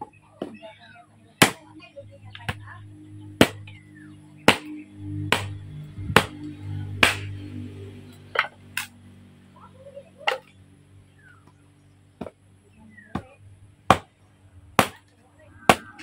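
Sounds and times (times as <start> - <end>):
hatchet chopping firewood: 1.4 - 1.7, 3.4 - 3.8, 4.4 - 7.3, 8.3 - 8.9, 10.2 - 10.6, 12.2 - 12.4, 13.0 - 16.0.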